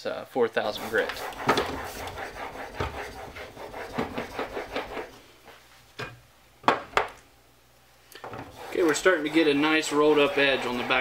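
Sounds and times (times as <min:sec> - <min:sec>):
plane iron scraping on whetstone: 0:00.6 - 0:05.1, 0:08.4 - 0:11.0.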